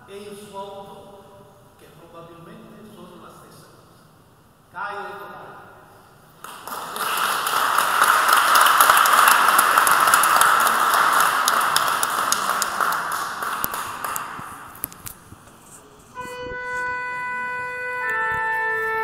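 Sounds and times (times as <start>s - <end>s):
audience applauding: 6.4s - 14.9s.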